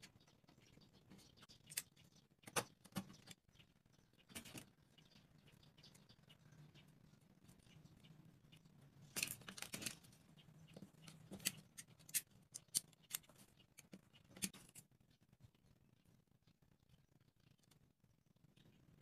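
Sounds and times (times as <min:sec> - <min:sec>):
wooden sticks being handled: 0:09.1 - 0:10.1.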